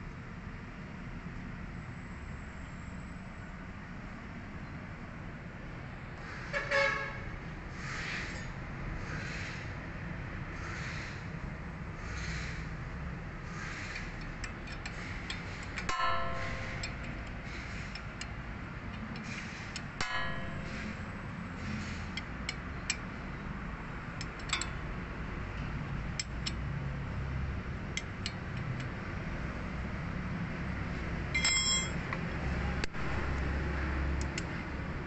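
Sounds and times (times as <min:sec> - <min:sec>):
wrench clicking on metal: 0:14.0 - 0:19.9, 0:24.2 - 0:24.8
ringing metallic clinks: 0:31.4 - 0:32.0.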